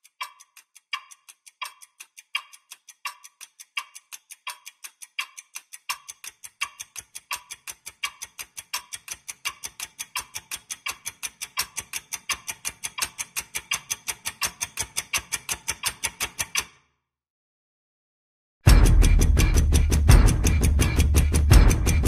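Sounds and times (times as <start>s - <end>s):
clock-like ticking with thuds: 0.0s - 16.8s, 18.7s - 22.0s.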